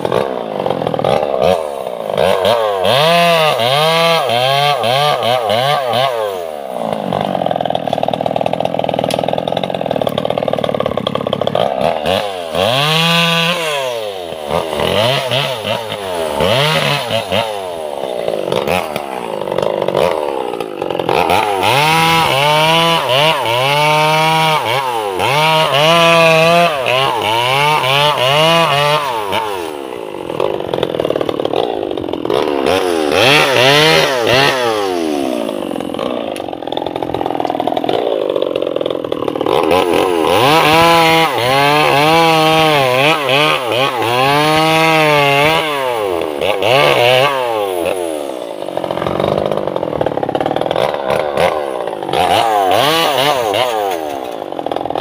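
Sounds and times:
chainsaw cutting logs: 0.0s - 55.0s.

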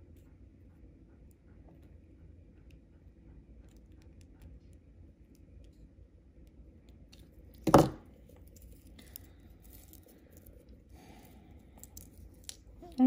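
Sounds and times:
pliers knocking on table: 7.6s - 8.0s.

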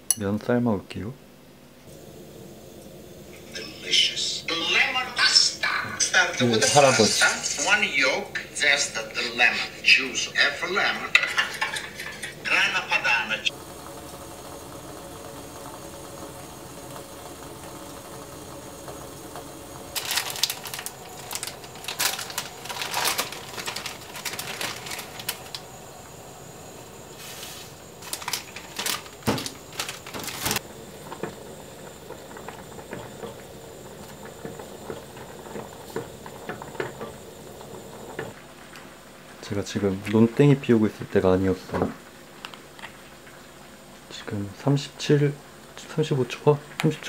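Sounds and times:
steady low hum: 0.0s - 40.1s
cookware and utensils clinking: 6.0s - 8.5s, 10.8s - 12.9s
short hiss: 27.1s - 28.5s.

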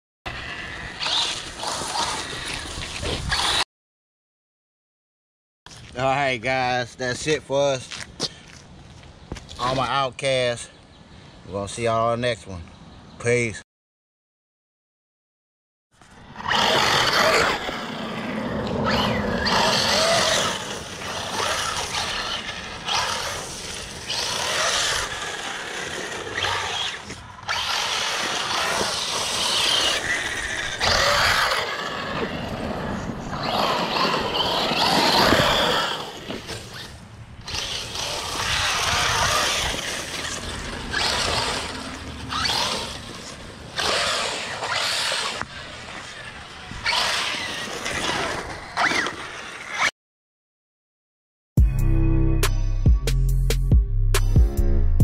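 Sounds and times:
electric motor whine: 16.4s - 48.0s.

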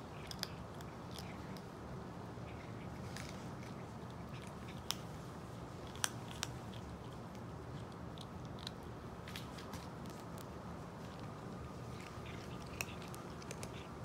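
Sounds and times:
kitten crunching kibble: 0.0s - 14.0s.

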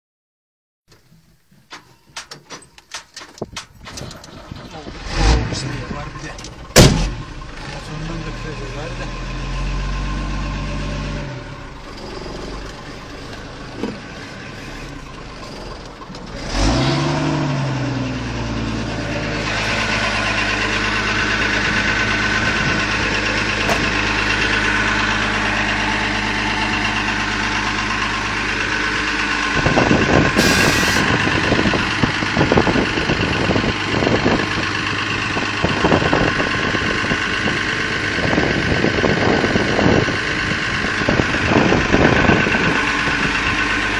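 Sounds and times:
clattering and knocks: 0.9s - 4.6s
diesel truck engine idling: 1.4s - 43.9s
sharp hiss of released air: 30.4s - 31.0s.

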